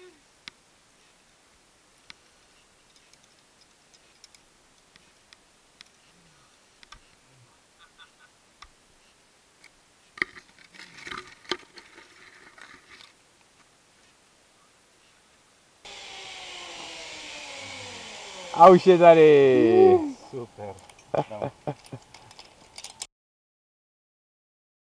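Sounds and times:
rustling: 1.9s - 15.4s, 20.1s - 23.1s
metallic clicks of climbing gear: 2.1s - 5.1s, 20.7s - 23.1s.

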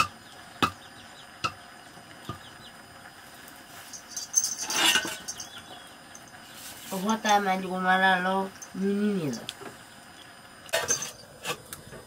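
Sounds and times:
clattering and rustling: 3.7s - 5.6s.

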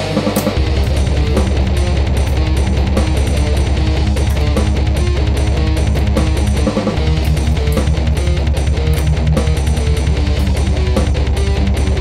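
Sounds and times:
heavy metal music: 0.0s - 12.0s.

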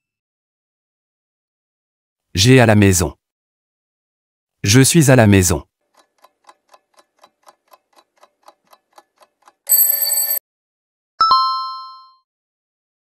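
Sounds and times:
clock ticking: 5.9s - 10.4s
alarm clock bell ring: 9.7s - 10.4s
two-tone ding: 9.7s - 10.4s.

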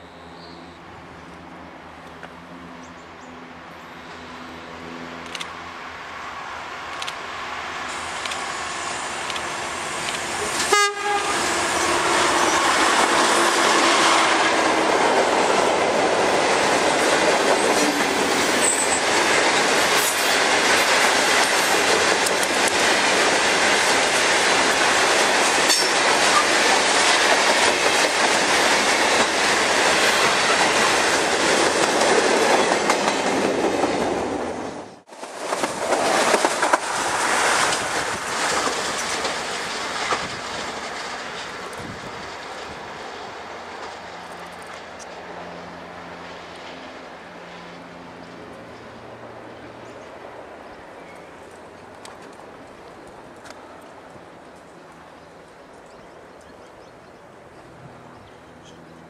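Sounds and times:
diesel locomotive engine hum: 0.0s - 59.0s
train wheels clattering over rails: 7.9s - 45.2s.

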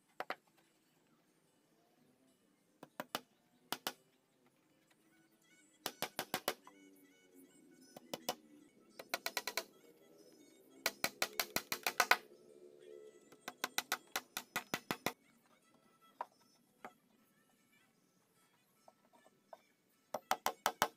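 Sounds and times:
faint background music: 0.0s - 20.9s
hammer driving nails into wood: 5.8s - 6.6s, 10.8s - 12.2s, 13.4s - 15.2s, 20.1s - 20.9s.

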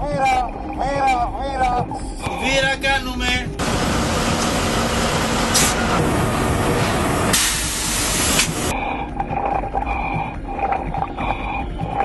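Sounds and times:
background music: 0.0s - 4.4s
winch rushing hiss: 3.6s - 8.7s.

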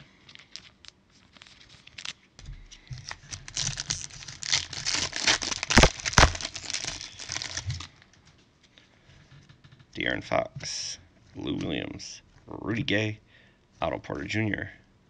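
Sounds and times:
plastic wrapper crinkling: 0.0s - 8.2s.

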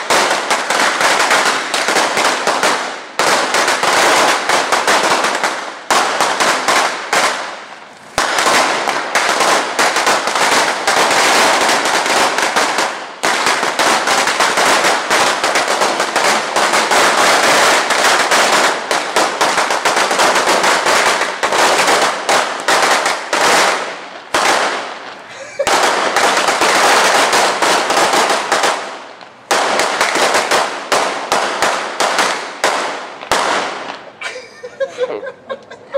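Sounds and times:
firecrackers banging: 0.0s - 35.9s.

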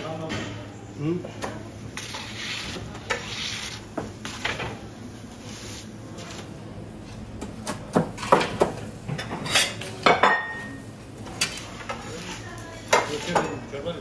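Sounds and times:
kitchen utensils and dishes clinking: 8.2s - 13.8s.

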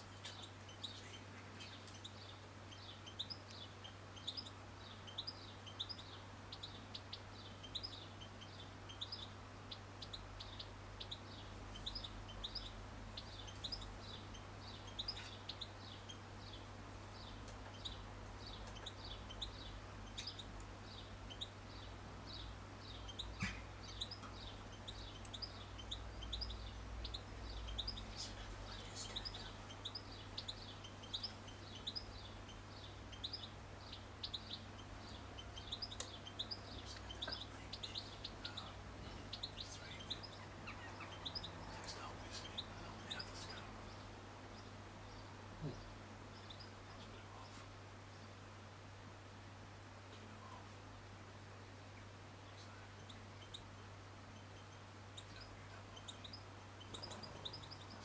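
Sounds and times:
low steady hum: 0.0s - 58.0s
small birds chirping: 0.0s - 58.0s.

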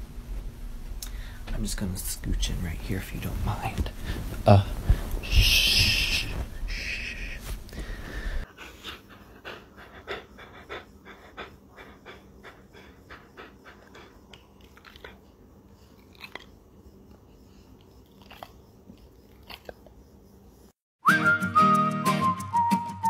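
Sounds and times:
dog panting: 8.4s - 16.4s.

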